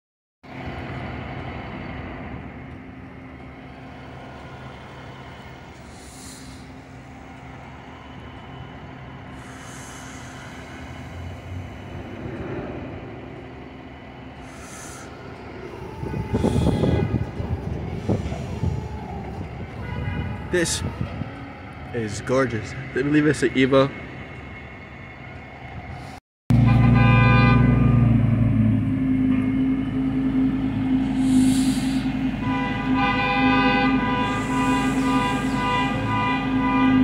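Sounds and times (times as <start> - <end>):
short hisses: 5.8 - 6.8, 31.0 - 32.2
truck engine running: 26.5 - 37.0.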